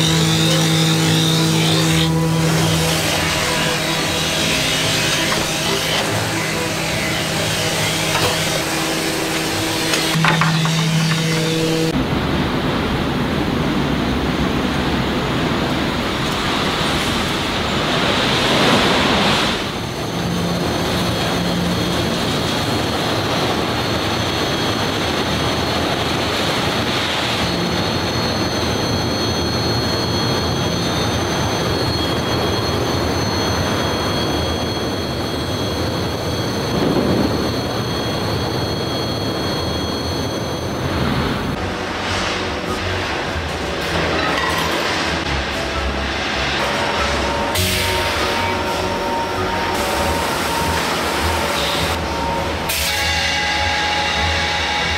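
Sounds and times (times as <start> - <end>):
furnace rushing: 0.0 - 12.0
thin high whine: 0.0 - 12.0, 15.6 - 54.9.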